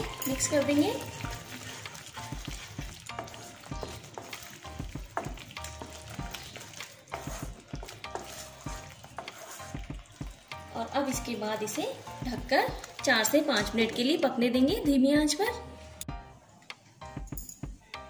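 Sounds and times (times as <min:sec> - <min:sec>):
paste sizzling in oil: 0:00.0 - 0:14.8
wooden spatula scraping pan: 0:01.5 - 0:10.5.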